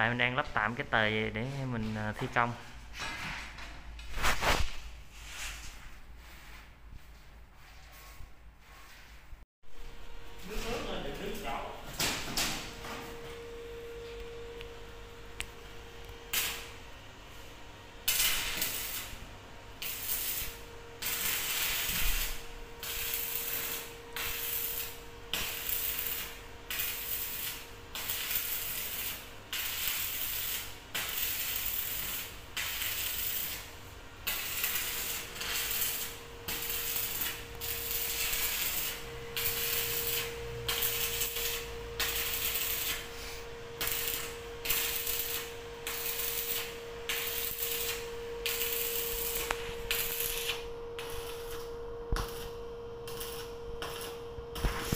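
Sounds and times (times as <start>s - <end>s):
welding arc crackling: 15.4s - 16.9s, 18.0s - 54.9s.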